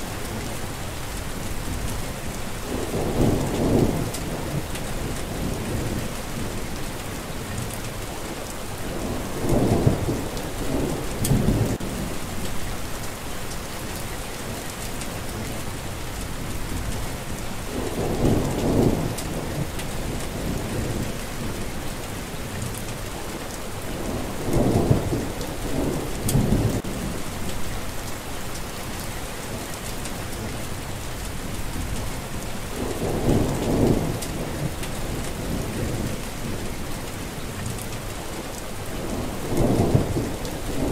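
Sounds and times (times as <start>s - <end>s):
steady rain: 0.0s - 40.9s
thunder rumbling: 1.6s - 6.7s, 8.8s - 12.8s, 17.7s - 21.7s, 24.0s - 27.8s, 32.7s - 37.2s, 38.9s - 40.9s.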